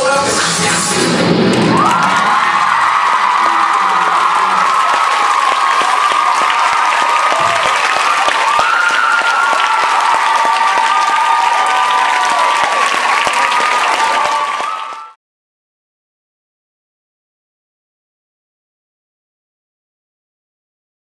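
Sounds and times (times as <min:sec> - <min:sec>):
audience clapping and cheering: 0:01.2 - 0:15.2.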